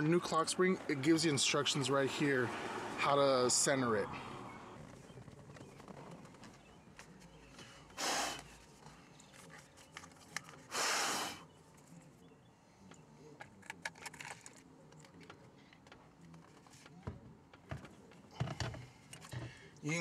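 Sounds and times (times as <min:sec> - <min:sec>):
hissing huffs of breath: 0:08.0 - 0:08.5, 0:10.7 - 0:11.4.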